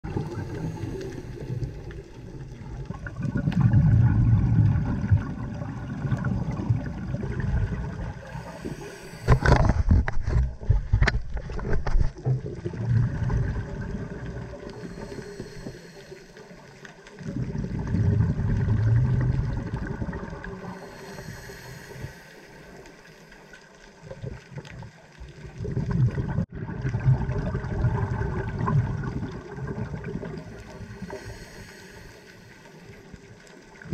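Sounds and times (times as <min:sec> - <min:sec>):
underwater regulator bubbling: 0:00.0 - 0:23.0
inhalation hiss: 0:00.2 - 0:02.0, 0:08.2 - 0:09.7, 0:14.7 - 0:16.8, 0:20.7 - 0:23.5, 0:30.5 - 0:33.1.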